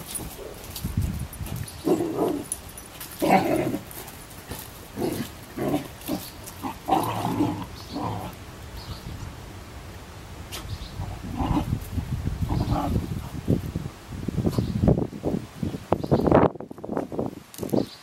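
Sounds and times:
dogs growling: 0:01.8 - 0:08.4, 0:11.0 - 0:11.8, 0:12.4 - 0:13.4.

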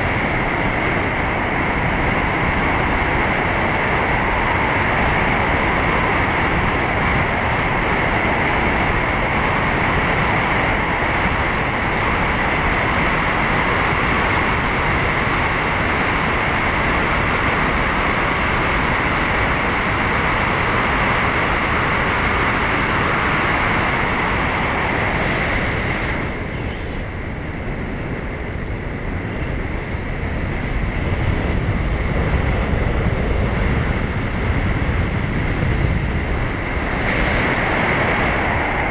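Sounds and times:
car road and wind noise: 0:00.0 - 0:38.9.

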